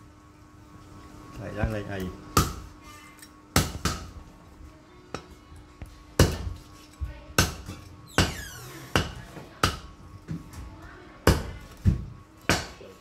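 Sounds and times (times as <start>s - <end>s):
cleaver chopping on wooden board: 2.4s - 2.6s, 7.4s - 9.9s, 11.3s - 12.8s.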